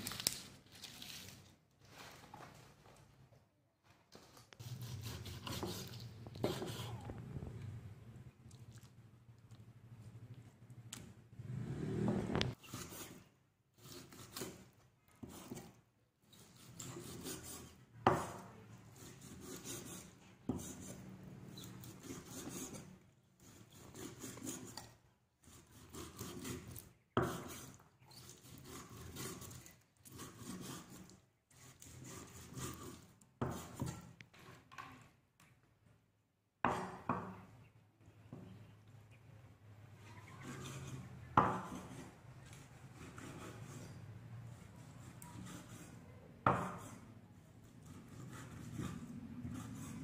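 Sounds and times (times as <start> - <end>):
blade scraping on wood: 12.0 - 34.6, 40.2 - 47.0, 47.6 - 50.0.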